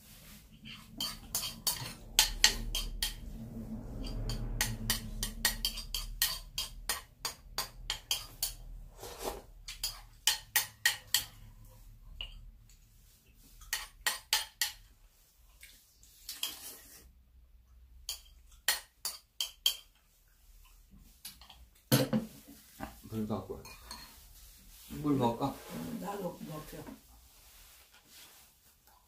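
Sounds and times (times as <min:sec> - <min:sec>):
spoons clinking on ceramic bowls: 0:00.7 - 0:03.2, 0:04.0 - 0:08.6, 0:09.7 - 0:11.5, 0:23.6 - 0:24.2.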